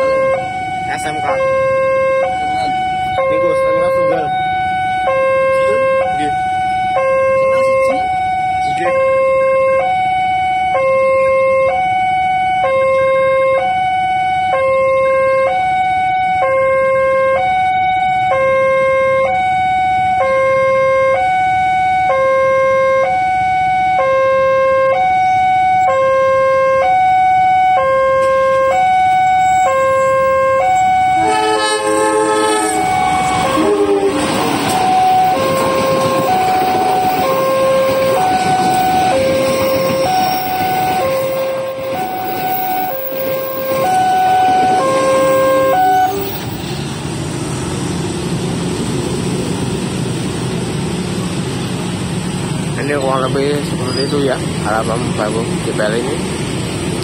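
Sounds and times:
train horn: 0:00.0 - 0:10.0, 0:20.1 - 0:21.4, 0:22.0 - 0:27.0, 0:27.7 - 0:46.4
level-crossing alarm two-tone: 0:00.0 - 0:46.5
train wheels rumbling on rails: 0:27.9 - 0:57.0.

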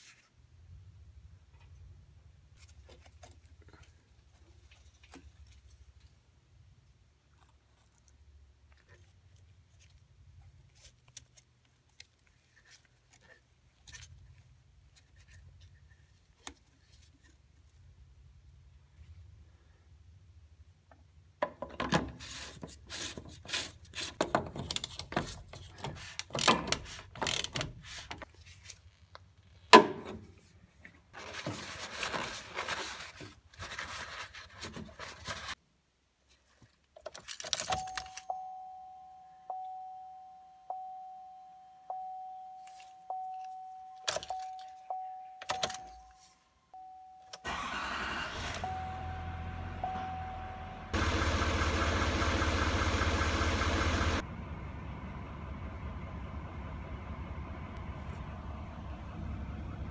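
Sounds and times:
truck warning chime dinging: 0:37.7 - 0:46.2, 0:46.8 - 0:54.2
diesel engine cranking and running: 0:47.4 - 0:59.9.

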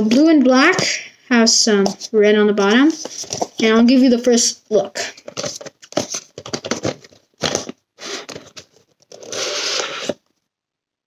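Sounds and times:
cardboard and wrapping rubbing: 0:02.7 - 0:03.7, 0:05.2 - 0:10.2
cardboard box rustling and tapping: 0:05.2 - 0:08.9.

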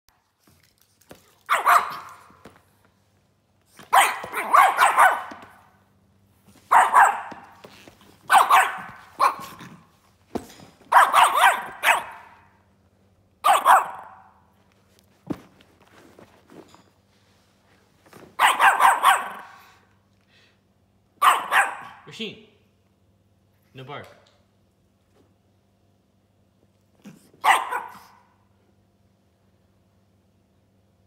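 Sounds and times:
small dog barking angrily: 0:01.4 - 0:02.4, 0:03.8 - 0:05.7, 0:06.7 - 0:07.6, 0:08.2 - 0:09.9, 0:10.9 - 0:12.5, 0:13.4 - 0:14.4, 0:18.4 - 0:19.8, 0:21.2 - 0:22.1, 0:27.1 - 0:28.3.

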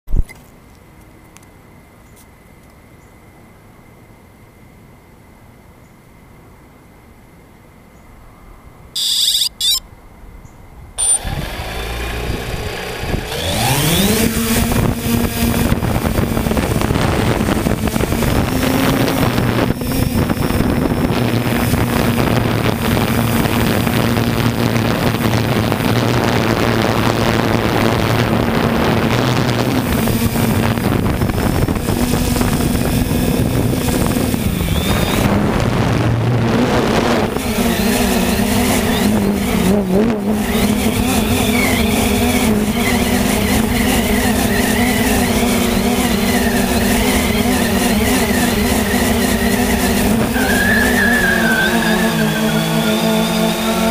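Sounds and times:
drone motors humming: 0:09.0 - 0:09.8, 0:11.0 - 0:53.9
short beeps: 0:09.0 - 0:09.9, 0:11.0 - 0:11.2.

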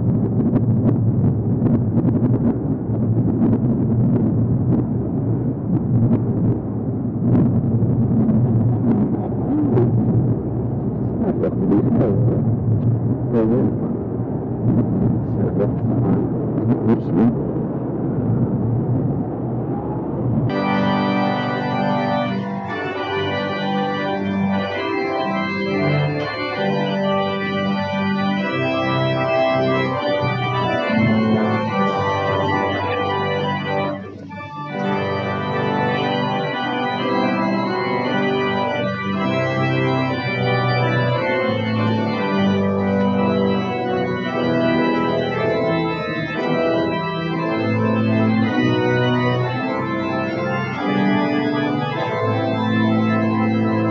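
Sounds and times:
church organ playing slow chords: 0:20.5 - 0:53.9.

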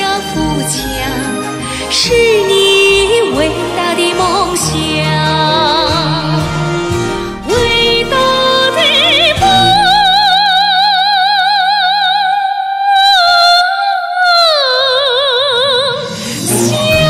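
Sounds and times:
woman singing into a microphone: 0:00.0 - 0:06.6, 0:07.4 - 0:17.0
musical accompaniment: 0:00.0 - 0:11.3, 0:16.0 - 0:17.0.

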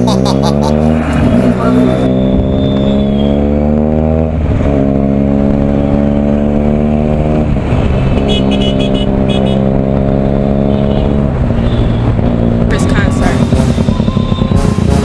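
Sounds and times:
horn beeps: 0:01.7 - 0:03.5, 0:13.1 - 0:15.0.

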